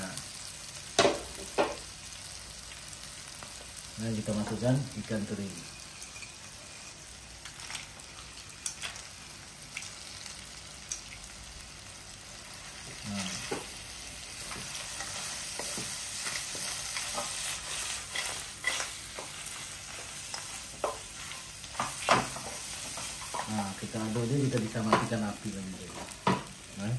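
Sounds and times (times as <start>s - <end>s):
sambal sizzling in a wok: 0.0s - 26.9s
spatula scraping against pan: 14.6s - 23.5s.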